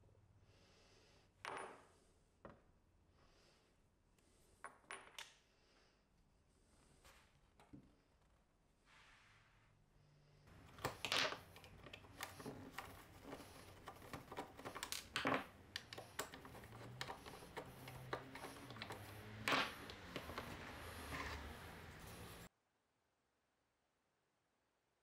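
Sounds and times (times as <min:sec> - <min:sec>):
metal parts clicking and knocking: 0:10.5 - 0:20.8.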